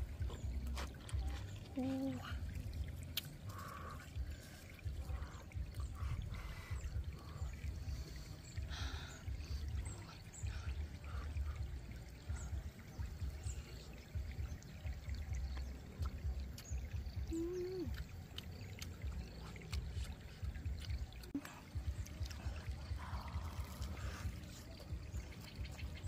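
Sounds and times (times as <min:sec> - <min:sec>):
stream running over stones: 0:00.0 - 0:26.0
chewing sounds: 0:00.1 - 0:06.1, 0:15.5 - 0:26.0
low rumble: 0:18.9 - 0:26.0.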